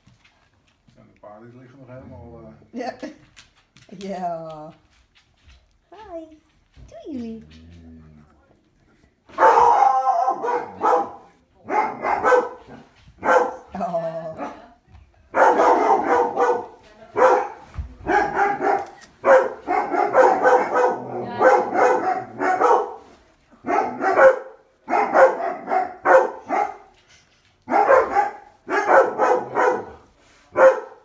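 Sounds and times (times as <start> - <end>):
dog barking: 9.3 - 13.8, 15.3 - 26.9, 27.7 - 31.0.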